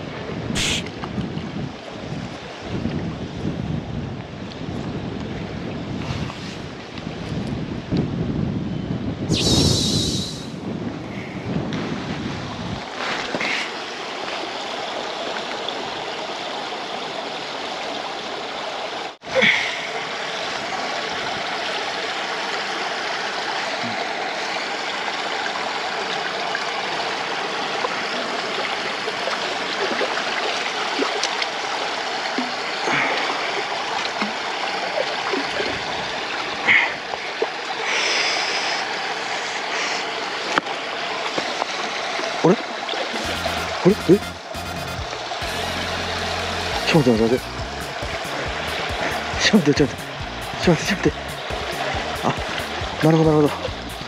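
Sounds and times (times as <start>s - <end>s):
water splashes: 11.8s - 54.0s
river water rushing over a weir: 12.0s - 54.0s.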